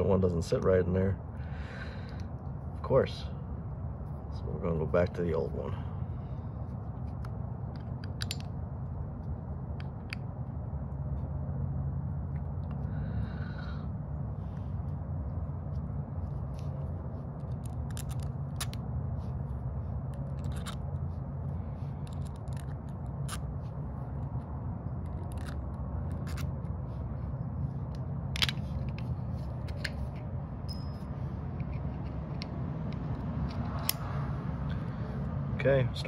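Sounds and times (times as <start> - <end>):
low background hum: 0.0 - 36.0
clicks of small metal parts: 7.2 - 8.6, 27.9 - 34.1.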